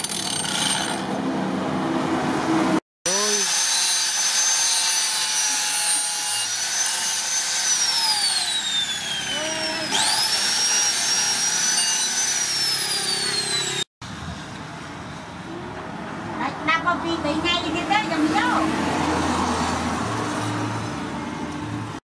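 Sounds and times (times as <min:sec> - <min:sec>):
angle grinder grinding steel: 0:03.1 - 0:13.9.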